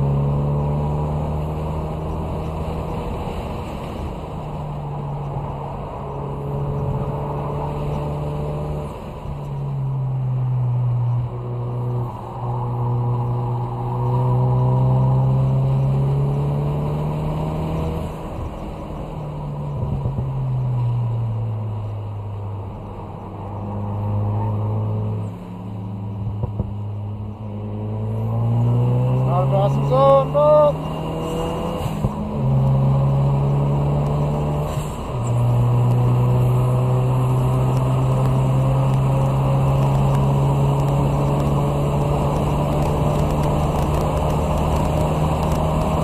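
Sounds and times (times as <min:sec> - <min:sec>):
car engine revving from inside cabin: 0:27.6 - 0:46.0.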